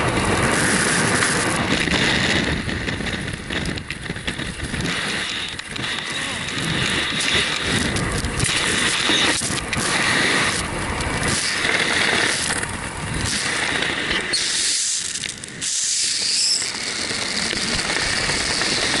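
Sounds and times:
wind buffeting microphone: 0.0s - 14.3s.

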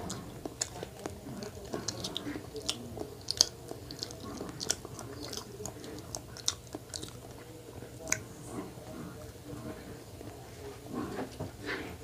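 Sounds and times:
person chewing: 0.0s - 8.4s.

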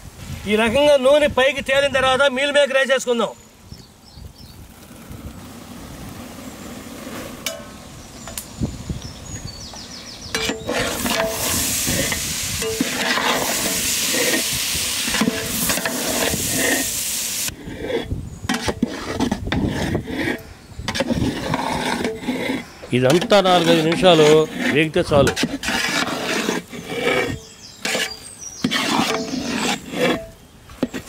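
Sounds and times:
ladle knocking and scraping pot: 10.3s - 16.9s, 18.5s - 31.0s
food sizzling loudly in a pot: 10.8s - 17.5s.

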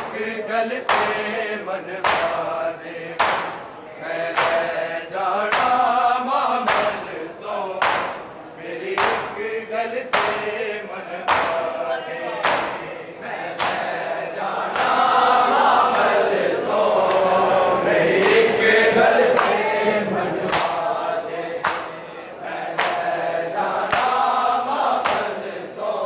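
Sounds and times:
men chanting in unison: 0.0s - 26.0s
hands slapping chests: 0.8s - 1.3s, 2.0s - 2.6s, 3.2s - 4.8s, 5.5s - 6.0s, 6.6s - 7.1s, 7.8s - 8.4s, 9.0s - 9.4s, 10.0s - 10.6s, 11.2s - 11.7s, 12.4s - 12.9s, 13.5s - 14.0s, 14.7s - 15.2s, 15.8s - 16.2s, 18.2s - 18.6s, 19.2s - 19.7s, 20.5s - 20.9s, 21.6s - 22.0s, 22.7s - 25.4s.

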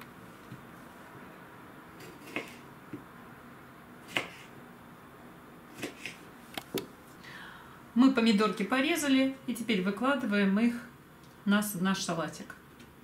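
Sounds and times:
faint background hiss: 0.0s - 13.0s.

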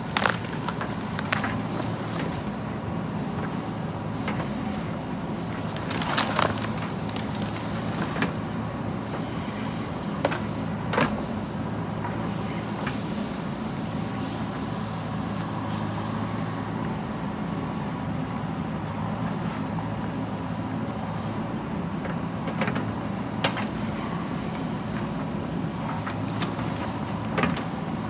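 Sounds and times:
backhoe diesel engine: 0.0s - 28.0s.

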